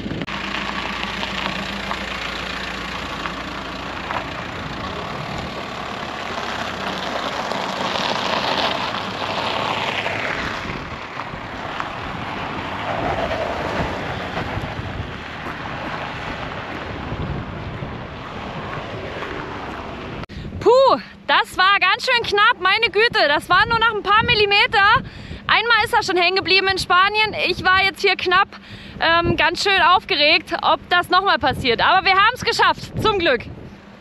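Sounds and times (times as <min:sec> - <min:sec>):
wind noise on microphone: 0:00.0 - 0:02.0, 0:04.0 - 0:34.0
van driving on dirt track: 0:00.0 - 0:20.3.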